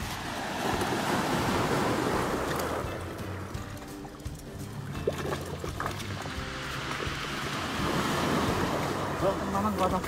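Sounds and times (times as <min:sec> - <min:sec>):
surf washing over shingle: 0:00.0 - 0:03.6, 0:05.9 - 0:10.0.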